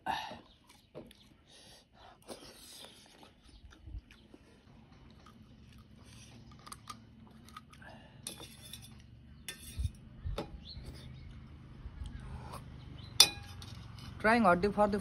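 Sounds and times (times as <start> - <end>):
quiet chewing: 0.4 - 9.2, 10.6 - 13.1
spoon scraping steel plate: 8.2 - 10.0.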